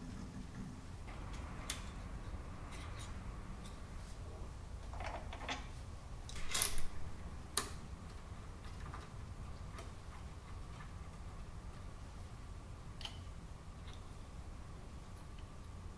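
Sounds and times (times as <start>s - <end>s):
steady low hum: 0.0s - 15.9s
metal tools clicking and clinking: 6.3s - 7.0s.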